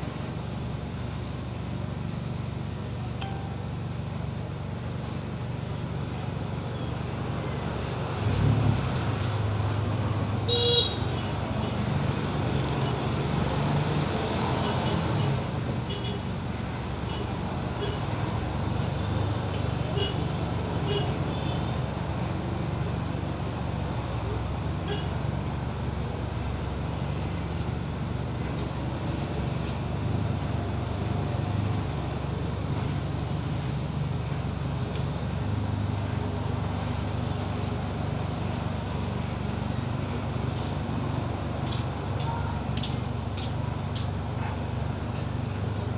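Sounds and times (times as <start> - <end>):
street traffic: 0.0 - 45.9
car horn toot: 10.5 - 11.1.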